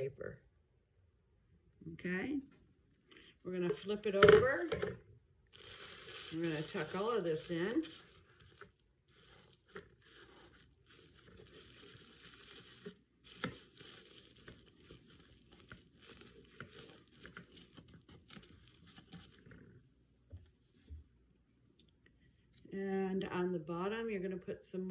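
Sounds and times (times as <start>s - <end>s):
tissue paper crinkling: 5.5s - 19.8s.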